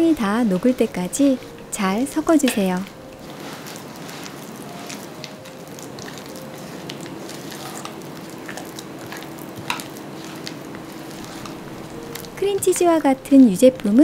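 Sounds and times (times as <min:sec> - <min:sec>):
spatula squishing and scraping batter: 0:00.0 - 0:14.0.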